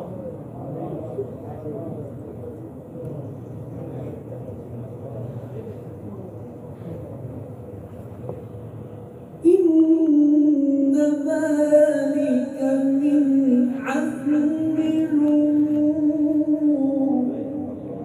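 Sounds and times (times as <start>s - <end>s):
man reciting in long melodic note: 9.4s - 18.0s.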